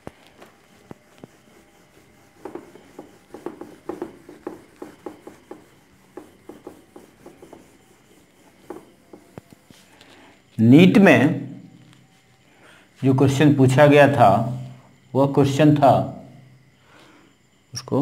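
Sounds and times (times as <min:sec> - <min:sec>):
eraser rubbing on whiteboard: 0:00.4 - 0:09.9.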